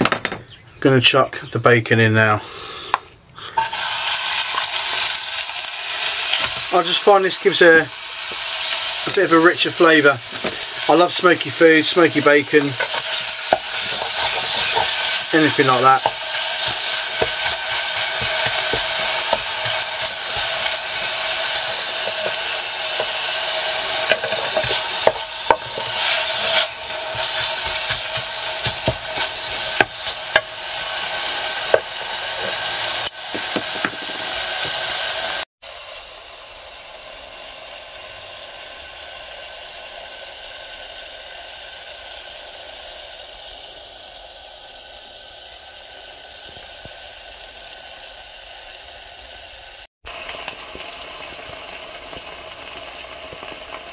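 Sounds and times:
bacon sizzling in oil: 3.6 - 53.9
wooden spoon scraping a pan: 10.3 - 34.9.

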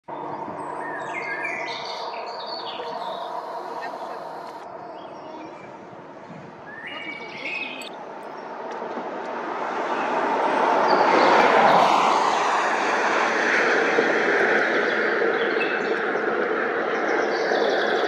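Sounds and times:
bird chirping: 0.1 - 5.8, 6.7 - 8.4
vehicle passing on highway: 0.1 - 18.0.

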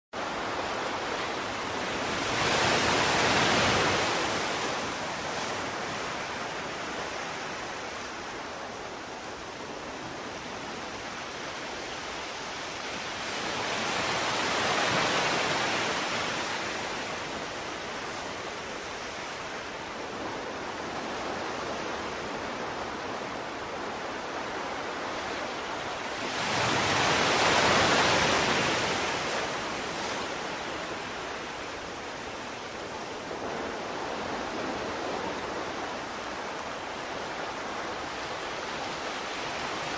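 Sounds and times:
waves washing onto beach: 0.2 - 39.9.

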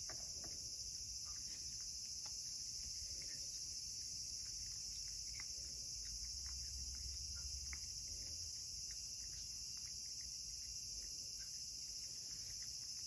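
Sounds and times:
cat chewing and licking: 0.0 - 13.0
insects chorus: 0.0 - 13.0.

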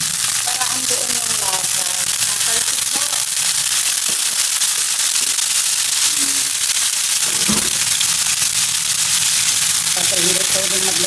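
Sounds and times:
chicken sizzling in hot oil: 0.0 - 11.0
oil spattering pops: 7.2 - 8.6
thump: 7.4 - 7.8.

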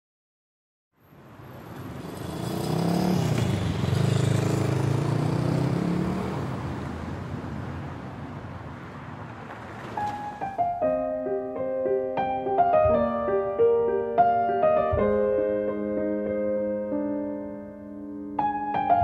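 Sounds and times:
city street traffic: 1.0 - 11.2
vehicle engine passing: 1.7 - 10.2.

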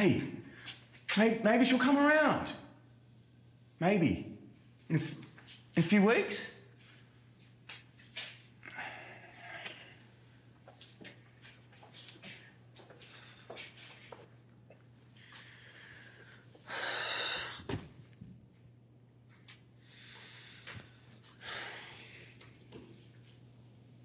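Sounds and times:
faint steady hum: 0.0 - 24.0
man breathing heavily and sighing: 8.6 - 10.0, 15.2 - 17.8, 19.9 - 22.5.

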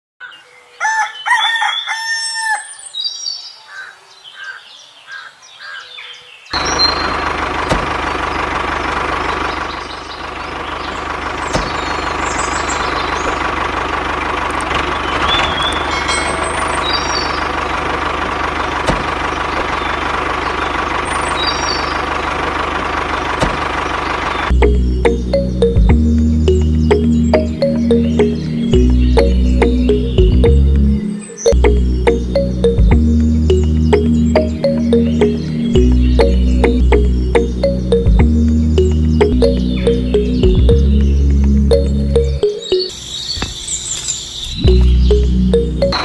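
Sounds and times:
birds chirping: 0.2 - 22.4, 23.9 - 46.0
rooster crowing: 0.7 - 2.9.

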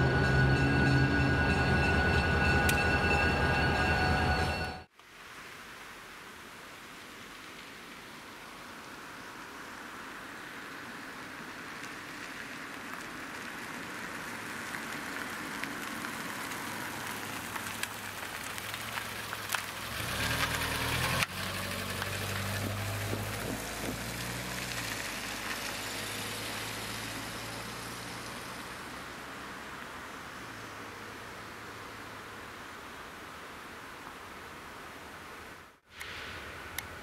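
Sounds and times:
diesel locomotive engine drone: 0.0 - 4.9.

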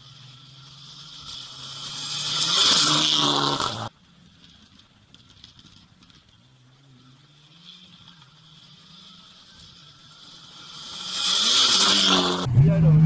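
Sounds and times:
rally car engine at full throttle: 0.0 - 13.0
tyres hissing on gravel: 0.7 - 3.9, 7.4 - 12.4.

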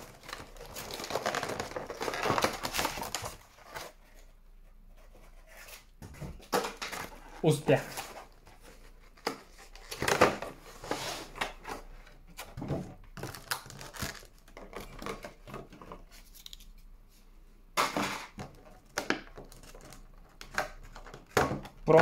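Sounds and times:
plastic packaging crinkling: 0.0 - 4.0, 13.2 - 15.3.

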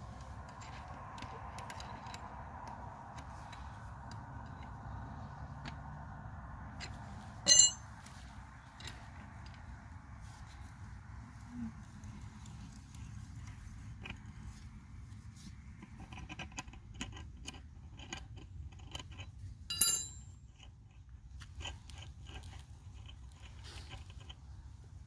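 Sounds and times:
sharp ringing metallic clink: 7.4 - 7.8, 19.7 - 20.4.

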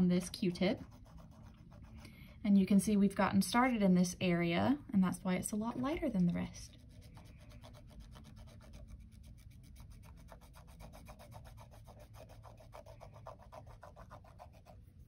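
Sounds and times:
cotton swab rubbing on canvas: 0.0 - 2.1, 5.5 - 15.0.

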